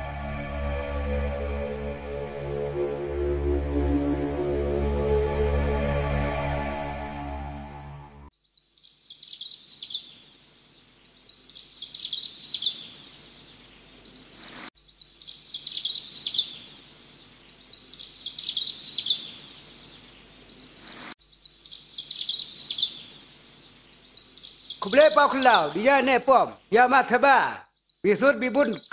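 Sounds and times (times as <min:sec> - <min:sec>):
birds chirping and twittering: 0:08.3 - 0:28.9.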